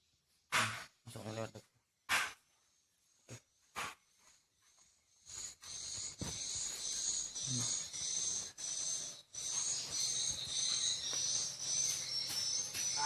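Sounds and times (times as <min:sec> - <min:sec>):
high-pitched bird chirps from speakers: 0:06.9 - 0:13.0.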